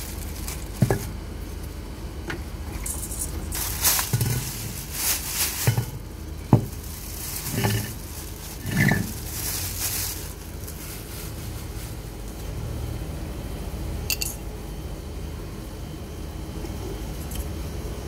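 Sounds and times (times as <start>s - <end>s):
plastic wrapping rustling: 0.0s - 1.8s, 2.7s - 12.6s
low background rumble: 0.0s - 18.0s.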